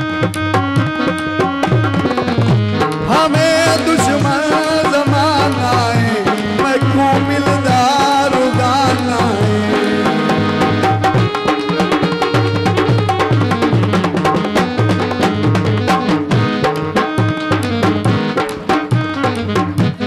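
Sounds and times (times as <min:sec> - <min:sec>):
instrumental backing: 0:00.0 - 0:20.0
tabla playing: 0:00.0 - 0:20.0
man singing: 0:03.0 - 0:10.5.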